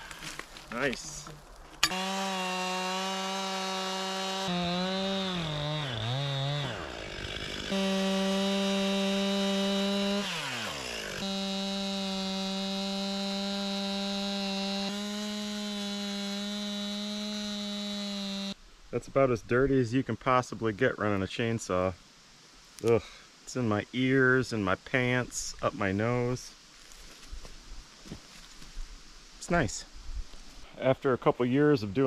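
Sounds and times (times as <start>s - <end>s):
chainsaw cutting log: 1.5s - 18.6s.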